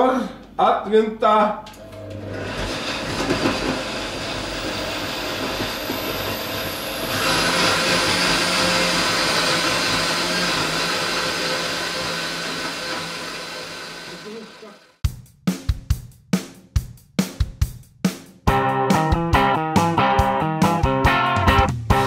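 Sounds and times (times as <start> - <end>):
blender whirring: 1.8 - 15.0.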